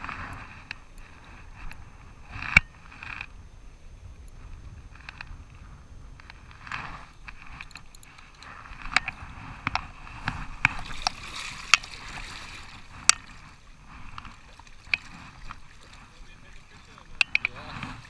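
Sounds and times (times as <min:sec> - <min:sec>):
fish splashing in shallow water: 0:06.3 - 0:18.0.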